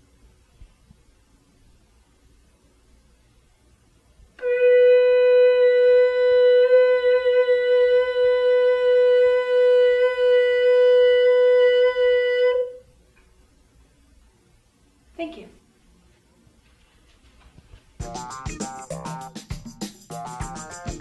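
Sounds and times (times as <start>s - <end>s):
long held note: 4.4s - 12.9s.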